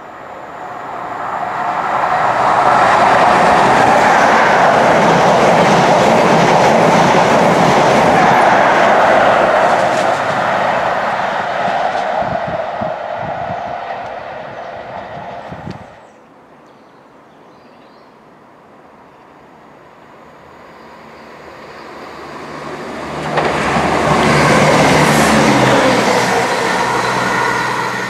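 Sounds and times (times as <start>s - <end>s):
train passing close by: 0.0s - 17.5s, 18.1s - 28.0s
train wheels over rail joints: 0.9s - 16.1s, 20.8s - 28.0s.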